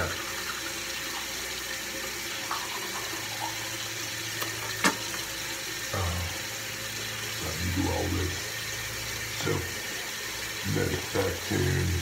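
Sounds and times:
tap running into sink: 0:04.3 - 0:05.4.

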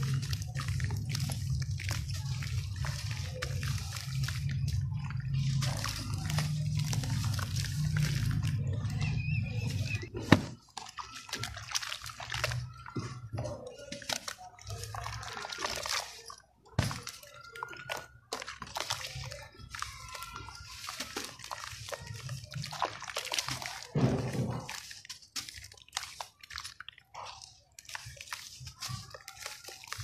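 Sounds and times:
gritty crackling: 0:00.0 - 0:10.6
water dripping: 0:00.0 - 0:30.0
wet sloshing and squelching: 0:00.0 - 0:30.0.

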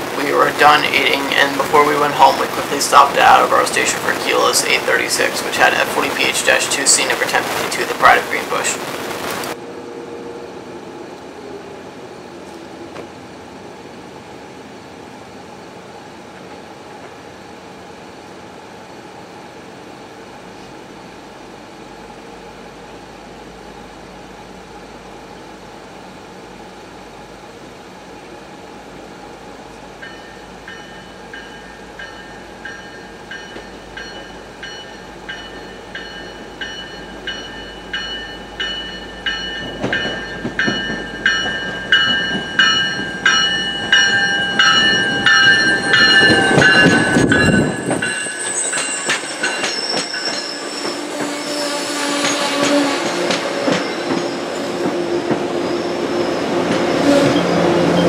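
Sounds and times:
ringing rail tones: 0:00.0 - 0:11.7, 0:29.5 - 0:58.0
train rumble: 0:00.0 - 0:58.0
train wheel clicks: 0:30.0 - 0:51.4, 0:52.2 - 0:55.5.

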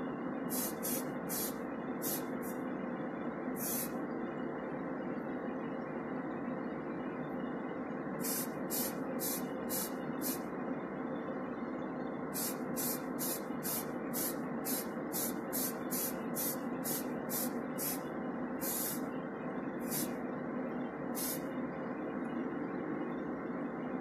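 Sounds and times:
aerosol can spraying: 0:12.4 - 0:18.0.

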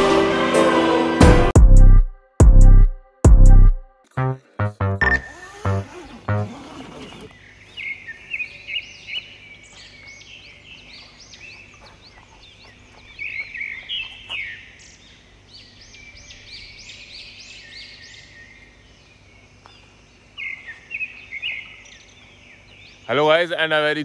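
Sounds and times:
small birds chirping: 0:05.3 - 0:23.8.

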